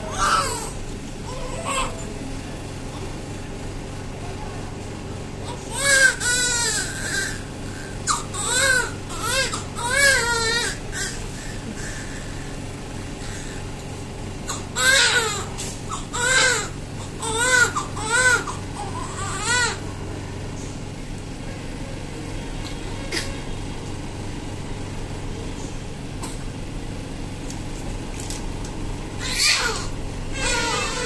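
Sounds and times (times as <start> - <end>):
steady background hum: 0.0 - 31.0
baby crying: 0.1 - 2.0, 5.4 - 11.2, 14.5 - 19.8, 29.2 - 31.0.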